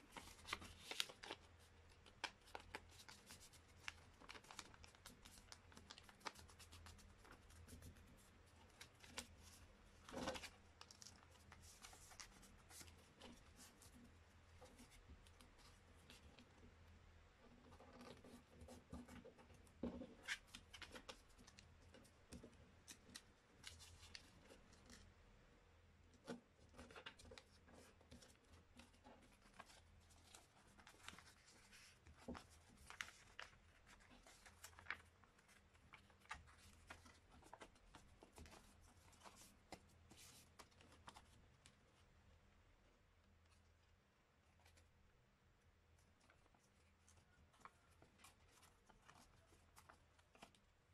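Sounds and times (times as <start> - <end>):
paper being folded and creased: 0.0 - 14.0, 20.0 - 25.0, 26.2 - 41.4, 46.2 - 50.9.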